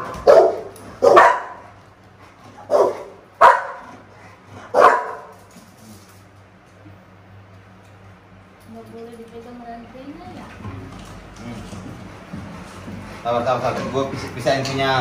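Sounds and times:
dog barking: 0:00.0 - 0:01.7, 0:02.6 - 0:04.0, 0:04.6 - 0:05.3.

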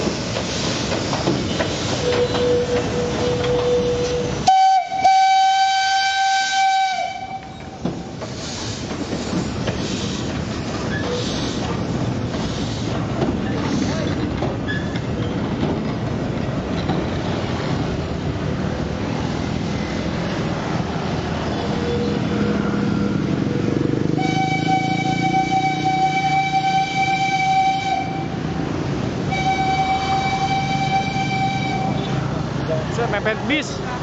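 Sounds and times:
steam hissing: 0:00.0 - 0:14.3
train rolling past: 0:00.0 - 0:34.0
steam whistle blowing: 0:01.9 - 0:07.8, 0:24.2 - 0:28.4, 0:29.3 - 0:32.2
motorcycle traffic: 0:15.8 - 0:27.2, 0:28.0 - 0:34.0.

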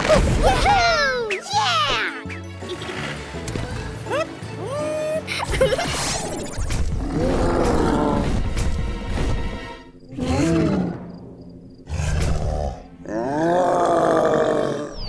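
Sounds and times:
background music: 0:00.0 - 0:15.0
cartoon dinosaur roars: 0:07.0 - 0:08.4, 0:10.1 - 0:11.0, 0:11.9 - 0:15.0.

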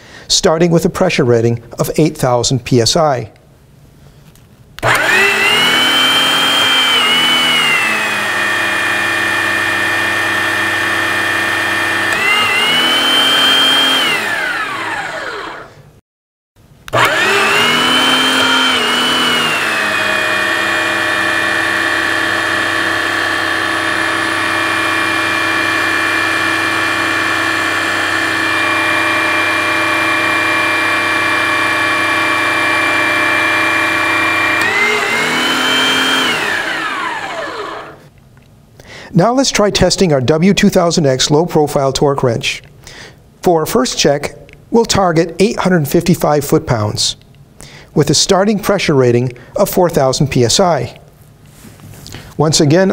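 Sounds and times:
hydraulic pump motor running: 0:04.8 - 0:15.8, 0:16.9 - 0:38.1.

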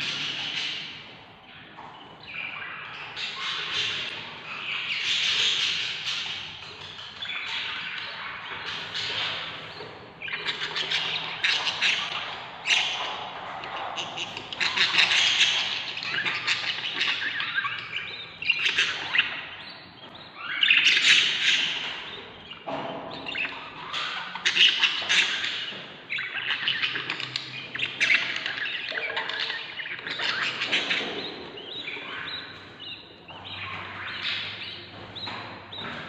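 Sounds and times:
chicks giving raspy begging calls: 0:00.0 - 0:36.0.

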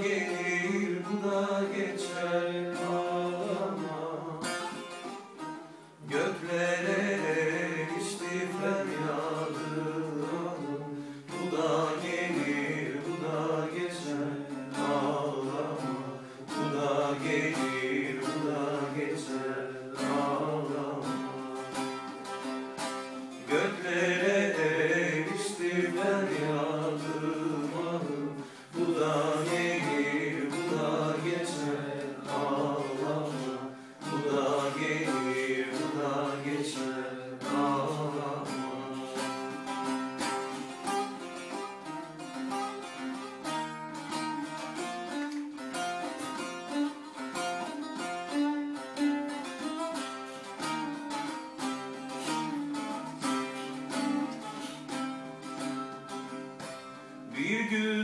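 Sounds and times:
long-necked lute folk melody: 0:00.0 - 0:58.0.

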